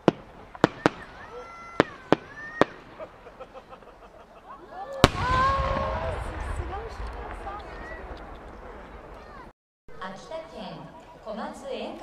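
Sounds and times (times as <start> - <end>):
firework rising pops: 5.0 - 9.5.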